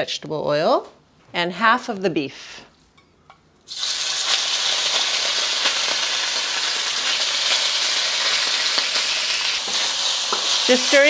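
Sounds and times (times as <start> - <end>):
meat sizzling in a wok: 3.7 - 11.0.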